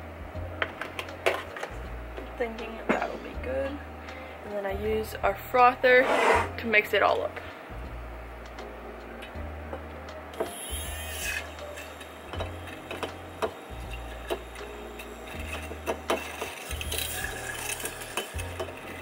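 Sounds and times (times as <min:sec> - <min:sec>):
electric milk frother whirring: 0:10.4 - 0:19.0.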